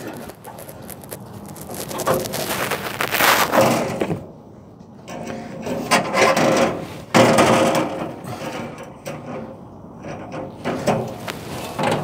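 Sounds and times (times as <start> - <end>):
metal scraping and rubbing: 0.0 - 3.9.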